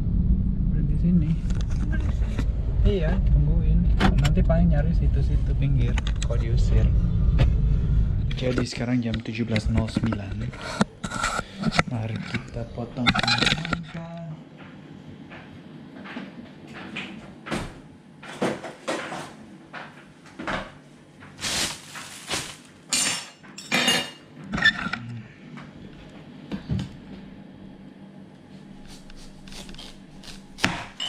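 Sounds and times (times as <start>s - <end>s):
utensils and dishes clattering: 22.9s - 25.0s
knife cutting into watermelon: 28.8s - 31.0s.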